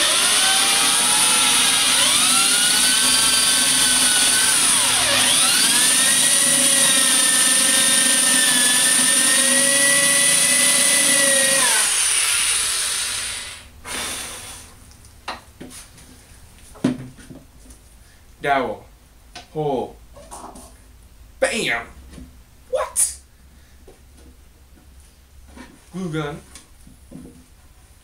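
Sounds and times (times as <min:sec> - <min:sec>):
electric drill boring into wood: 0:00.0 - 0:13.7.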